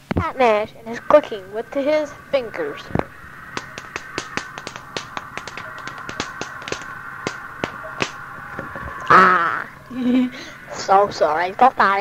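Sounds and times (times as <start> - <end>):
steady tape hum: 0.0 - 12.0
fingers snapping: 2.9 - 9.1.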